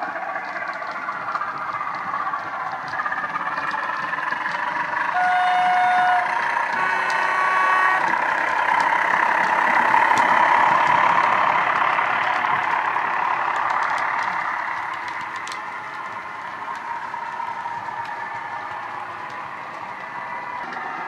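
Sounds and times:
diesel engine running: 0.0s - 21.0s
train rumbling on track: 0.0s - 21.0s
model train horn: 5.1s - 8.1s.

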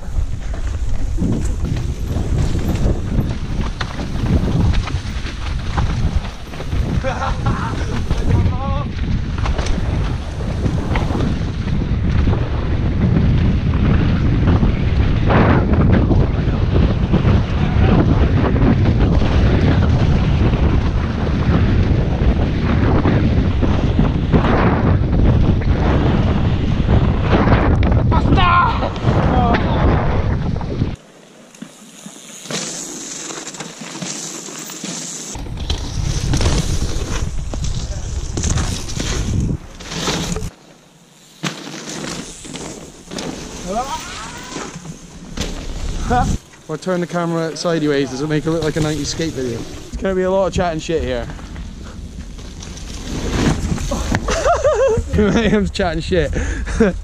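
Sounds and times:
wind buffeting microphone: 0.0s - 31.0s, 35.4s - 40.5s, 42.3s - 57.0s
bike tyres rumbling on trail: 0.0s - 57.0s
bike knocks and rattles: 0.1s - 47.2s.

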